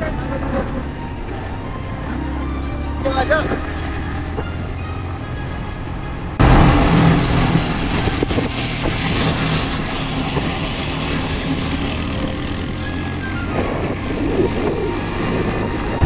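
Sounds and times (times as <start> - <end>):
wind rushing over microphone: 6.3 - 16.0.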